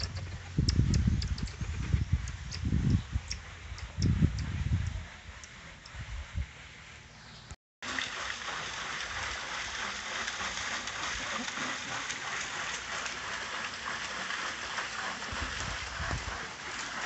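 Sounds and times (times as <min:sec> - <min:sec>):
splashing water hiss: 0:07.8 - 0:17.0.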